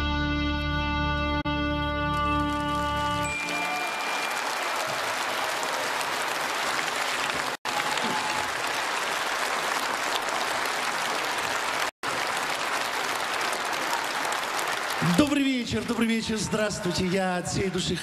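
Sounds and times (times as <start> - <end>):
audience applauding: 2.0 - 18.0.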